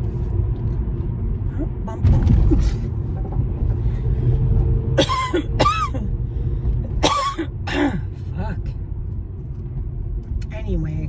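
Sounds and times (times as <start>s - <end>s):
car driving rumble: 0.0s - 11.0s
person coughing: 5.0s - 6.1s, 6.9s - 8.1s.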